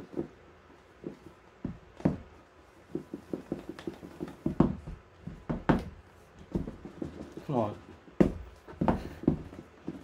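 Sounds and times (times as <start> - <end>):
hands tapping cardboard box: 1.0 - 7.5.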